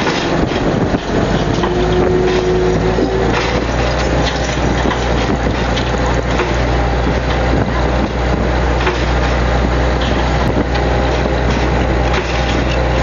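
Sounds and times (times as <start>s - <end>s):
boat engine low hum: 0.0s - 13.0s
wind on microphone: 0.0s - 13.0s.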